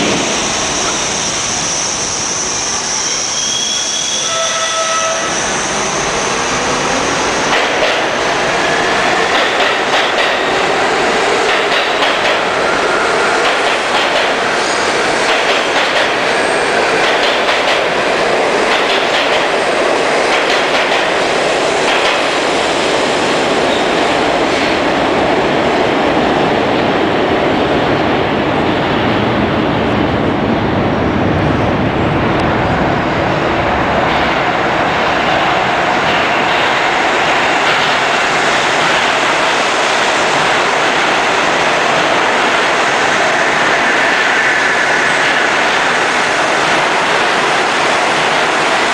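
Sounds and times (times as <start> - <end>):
subway train rumbling past: 0.0 - 48.9.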